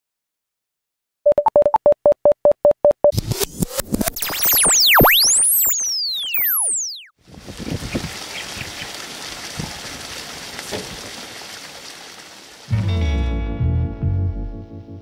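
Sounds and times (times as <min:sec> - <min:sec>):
whoosh with sweeping synth tones: 0:03.2 - 0:07.1
short electronic beeps: 0:04.2 - 0:07.1.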